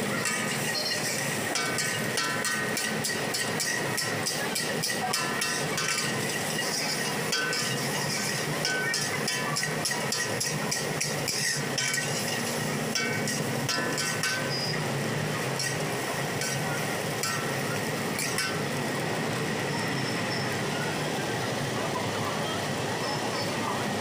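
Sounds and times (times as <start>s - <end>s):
metal spatula clanging on wok: 0.2s - 18.7s.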